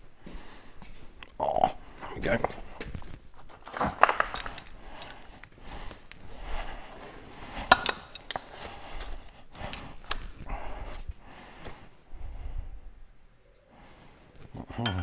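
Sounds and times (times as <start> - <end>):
hand tools clinking: 3.6 - 5.5, 7.6 - 8.7, 14.7 - 15.0.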